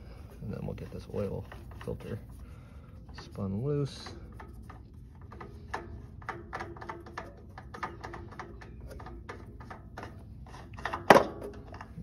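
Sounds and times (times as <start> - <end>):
metal oil filter clicks and taps: 4.0 - 10.2.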